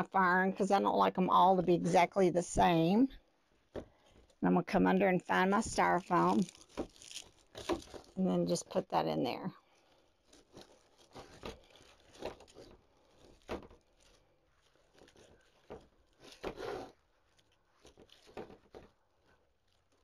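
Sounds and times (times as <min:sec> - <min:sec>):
ferns rustling and crinkling: 0:05.3 - 0:09.0, 0:09.7 - 0:20.0.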